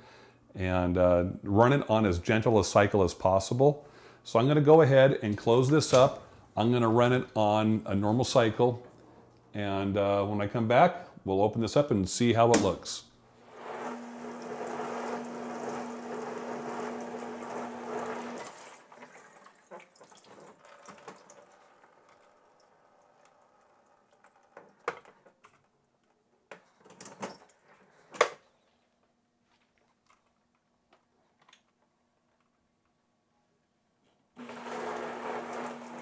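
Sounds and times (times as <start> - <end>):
dishwasher motor hum: 13.5 - 19.4, 34.4 - 36.0
dishwasher water spraying: 13.5 - 22.0.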